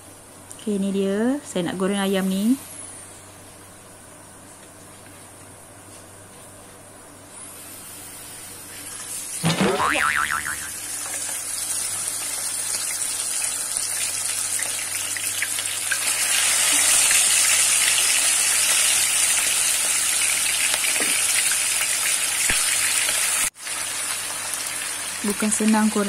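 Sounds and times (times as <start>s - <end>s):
chicken sizzling in hot oil: 10.0s - 26.0s.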